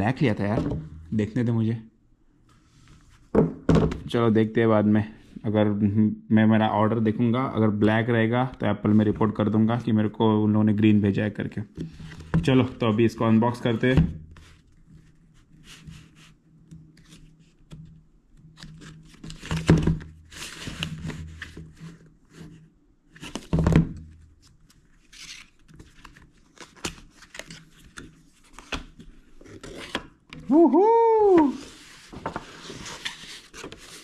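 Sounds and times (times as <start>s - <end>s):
cardboard rustling and sliding: 18.8s - 23.6s, 31.5s - 34.0s.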